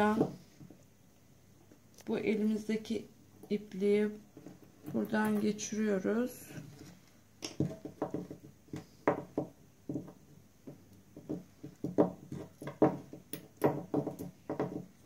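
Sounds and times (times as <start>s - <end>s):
beads knocking and clicking: 6.7s - 15.0s.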